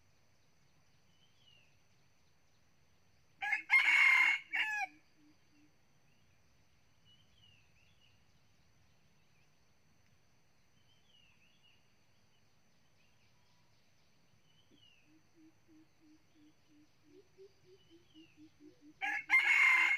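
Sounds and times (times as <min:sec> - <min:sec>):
soft bird chirps: 0:05.6 - 0:18.9.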